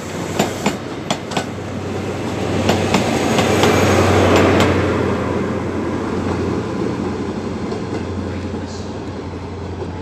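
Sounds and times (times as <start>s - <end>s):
diesel train engine passing: 0.0s - 10.0s
train wheels clicking over rail joints: 0.3s - 1.6s.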